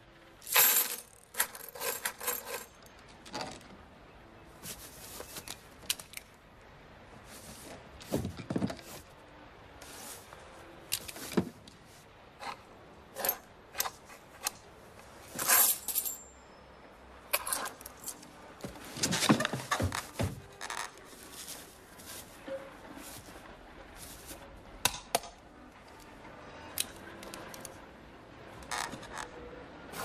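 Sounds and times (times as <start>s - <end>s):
coins clinking on wooden table: 0.4s - 2.9s, 15.4s - 16.4s.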